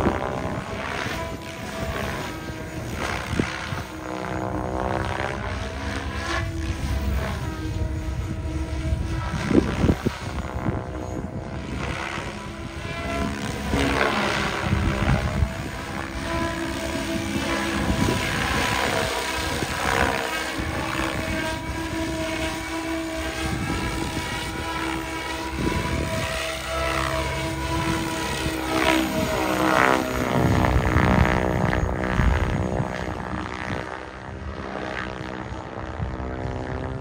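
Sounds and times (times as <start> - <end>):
rc helicopter rotor whine: 0.0 - 37.0.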